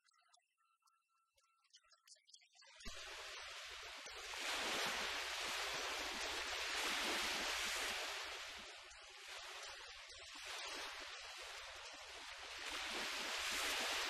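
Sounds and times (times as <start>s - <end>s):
surf rushing on a beach: 2.9s - 14.0s.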